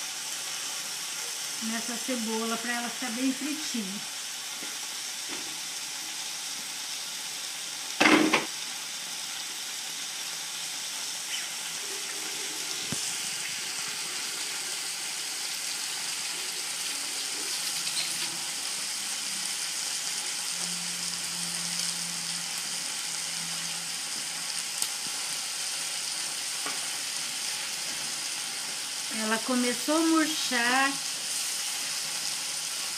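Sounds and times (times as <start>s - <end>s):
liver and onion sizzling in pan: 0.0s - 32.9s
loud sharp knock: 8.0s - 8.5s.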